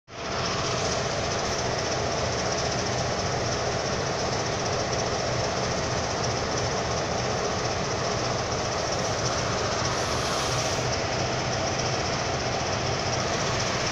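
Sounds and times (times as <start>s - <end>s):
locomotive engine running: 0.1s - 13.9s
low hum: 7.4s - 13.9s.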